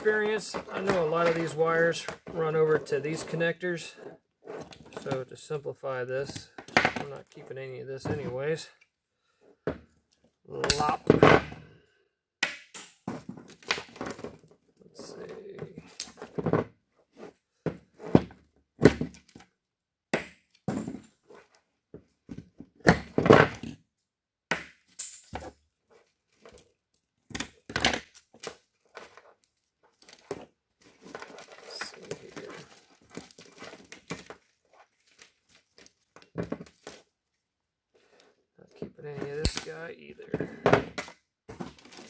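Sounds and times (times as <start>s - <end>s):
wires rustling and crinkling: 0.0s - 8.7s, 25.1s - 37.4s, 41.5s - 42.0s
cutters snipping wires: 39.4s - 39.7s.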